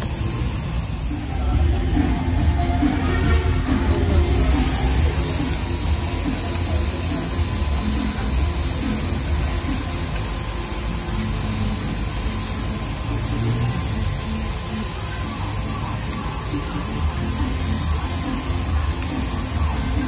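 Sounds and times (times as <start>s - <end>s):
engraving machine cutting plastic: 0.0s - 20.0s.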